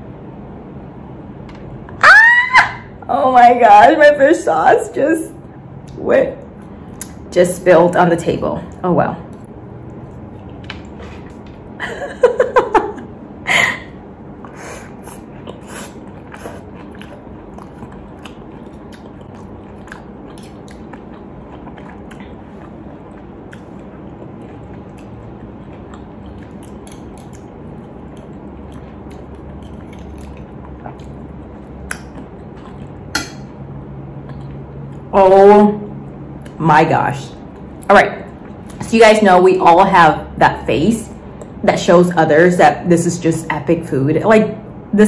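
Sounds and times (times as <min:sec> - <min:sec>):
quiet chewing: 0:14.4 - 0:33.1, 0:34.2 - 0:35.1.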